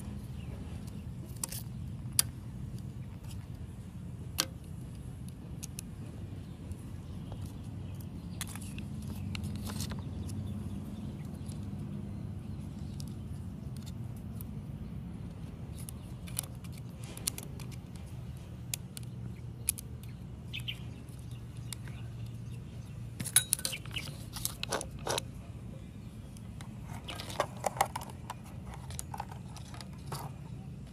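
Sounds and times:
steady low hum: 0:00.0 - 0:30.9
screwdriver and metal parts clicking: 0:15.3 - 0:20.2, 0:23.2 - 0:25.3, 0:26.4 - 0:30.5.

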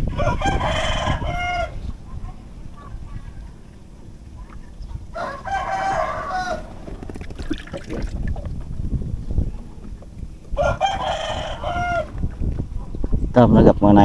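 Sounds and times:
rooster crowing: 0:00.0 - 0:01.8, 0:05.1 - 0:06.8, 0:10.6 - 0:12.2.

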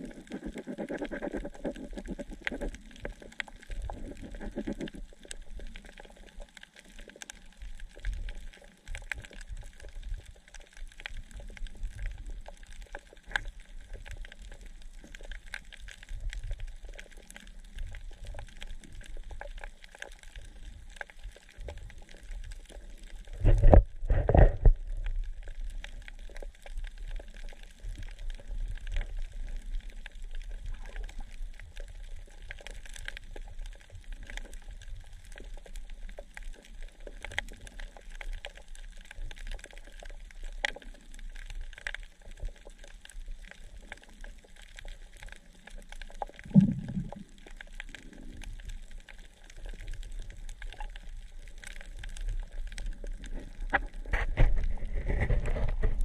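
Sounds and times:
underwater hiss and clicks: 0:00.0 - 0:56.0
low gurgling bursts: 0:46.4 - 0:47.4.

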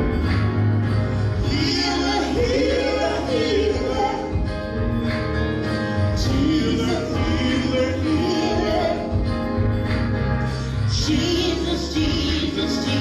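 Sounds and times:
gospel singing: 0:00.0 - 0:13.0
steady bass: 0:00.0 - 0:13.0.

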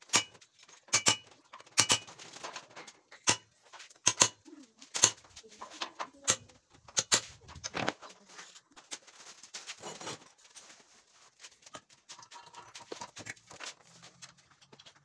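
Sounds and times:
hammer striking metal punch: 0:00.0 - 0:02.1, 0:04.1 - 0:04.4.

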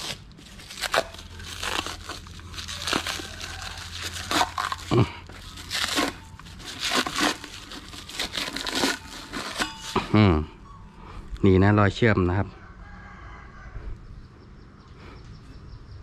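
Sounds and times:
plastic wrap crinkling: 0:00.0 - 0:10.0.

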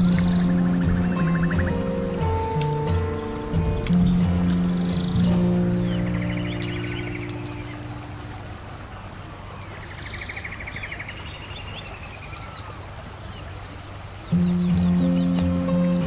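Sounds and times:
bird rapid trill: 0:00.0 - 0:02.6
background music: 0:00.0 - 0:08.5, 0:14.3 - 0:16.0
birds chirping: 0:00.0 - 0:16.0.

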